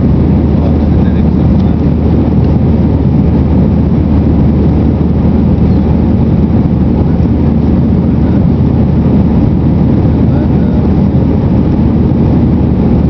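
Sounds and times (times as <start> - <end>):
jet engine roar in cabin: 0.0 - 13.0.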